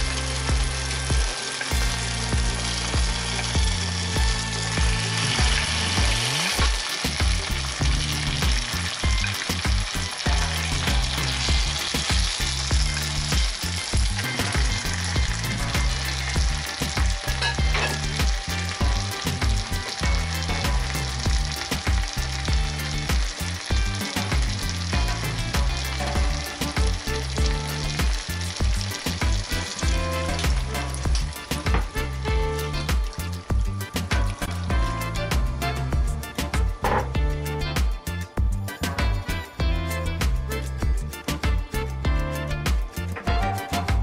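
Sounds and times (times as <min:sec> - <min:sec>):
food sizzling in a frying pan: 0:00.0 - 0:44.0.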